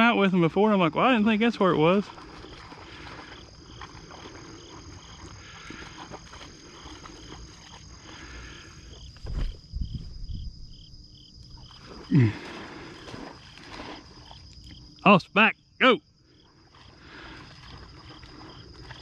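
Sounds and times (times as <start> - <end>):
thumps on microphone: 9.2 - 10.5.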